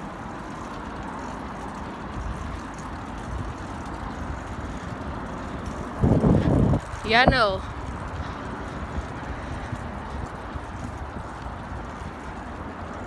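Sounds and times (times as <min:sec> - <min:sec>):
bike tyres rumbling on concrete: 0:00.0 - 0:13.0
wind on microphone: 0:03.2 - 0:13.0.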